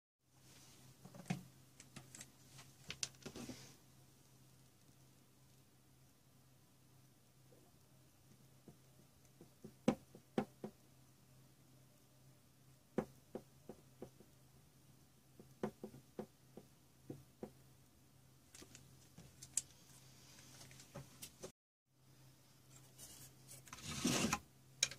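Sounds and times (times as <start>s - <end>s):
soft rustle: 0.4s - 1.0s, 18.5s - 21.5s.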